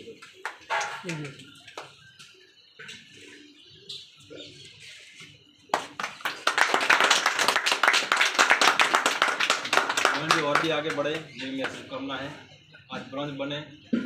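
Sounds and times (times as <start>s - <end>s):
people clapping: 0.0s - 2.0s, 5.7s - 12.0s.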